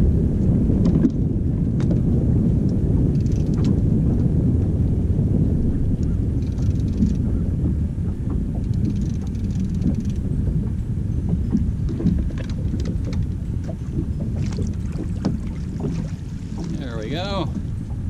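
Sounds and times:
wind buffeting microphone: 0.0 - 18.0
faint clicks: 6.0 - 7.2, 8.1 - 10.2.

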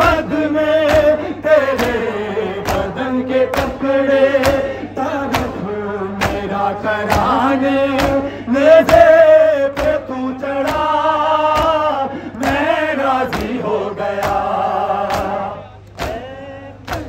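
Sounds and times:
men chanting a lament: 0.0 - 17.0.

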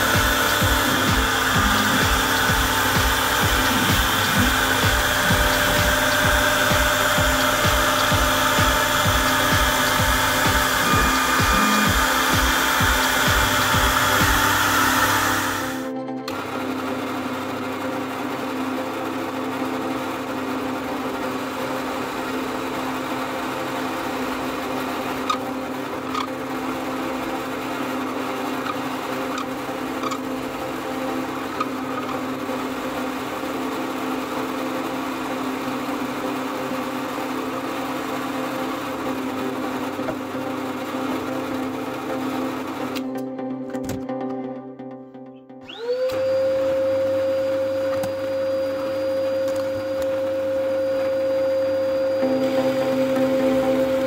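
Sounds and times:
drill press boring into wood: 0.0 - 15.9, 21.2 - 40.4.

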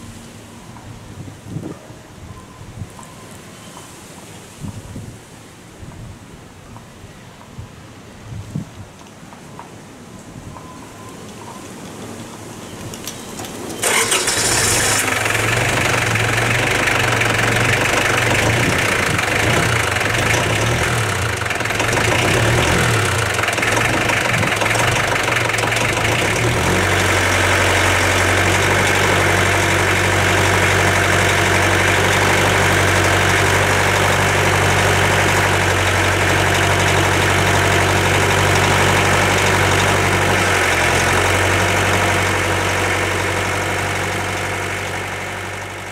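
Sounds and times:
tractor diesel engine running: 13.0 - 45.9.

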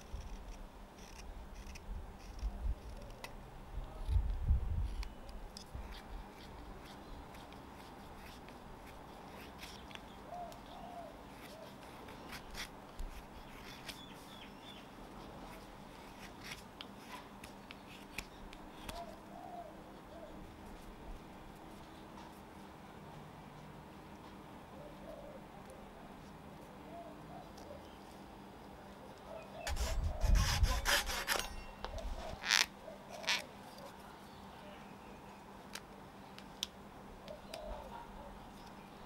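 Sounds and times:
faint bird calls: 9.6 - 12.6, 18.7 - 20.5, 29.0 - 30.4, 37.2 - 39.0.

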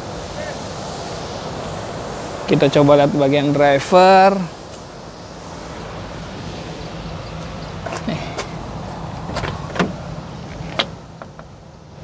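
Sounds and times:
steady low hum: 0.0 - 12.0
van door latch clicks and knocks: 9.3 - 11.5.

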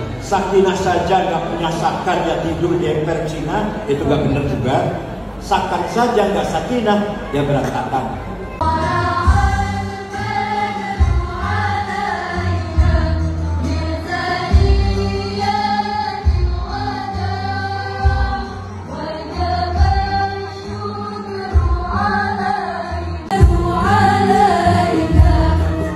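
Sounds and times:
amplified music: 7.2 - 25.9
voices singing together: 8.6 - 25.9.

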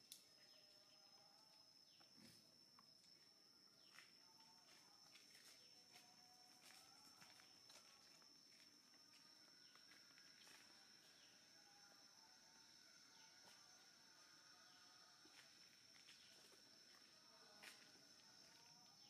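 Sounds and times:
high insect drone: 0.0 - 19.0.

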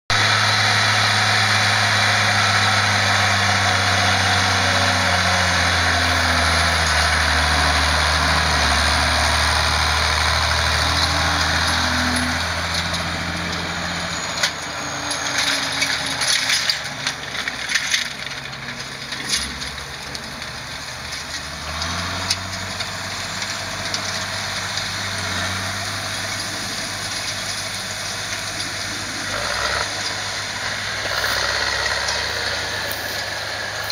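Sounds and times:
tractor diesel engine running: 0.1 - 33.9.

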